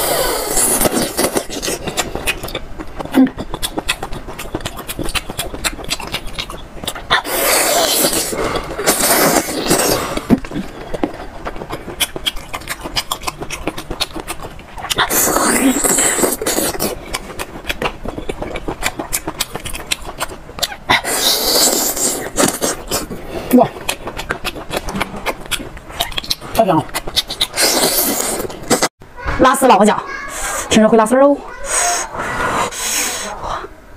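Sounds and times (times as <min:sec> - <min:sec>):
loud slurps: 0:00.0 - 0:02.4, 0:07.1 - 0:10.5, 0:15.0 - 0:17.0, 0:20.9 - 0:23.2, 0:27.2 - 0:28.9
small mouth clicks: 0:00.0 - 0:28.9
wet chewing: 0:00.0 - 0:28.9.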